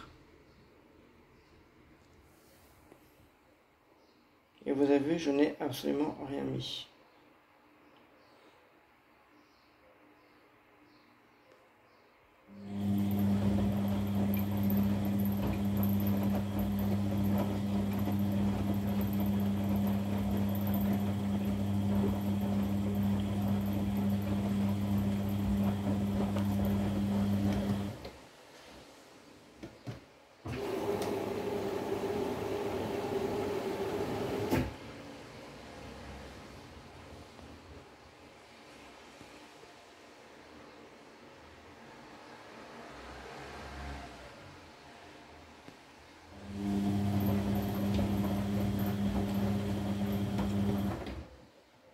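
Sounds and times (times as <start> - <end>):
washing machine motor humming: 12.5 - 28.2, 30.5 - 34.8, 46.3 - 51.4.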